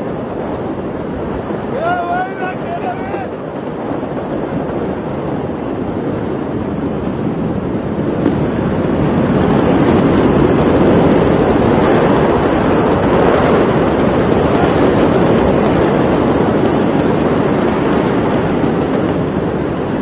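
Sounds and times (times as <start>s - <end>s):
loud rushing noise: 0.6s - 4.7s.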